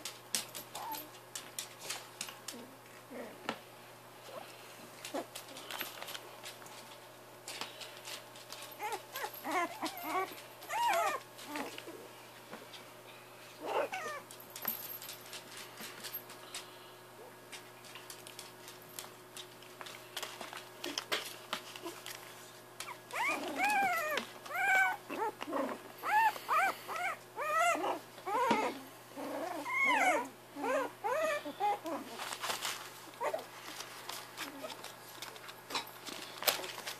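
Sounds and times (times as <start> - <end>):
paws scratching and rustling: 4.2 - 12.9, 17.4 - 36.9
puppy yelping: 8.8 - 11.8, 13.6 - 14.2, 22.8 - 32.2.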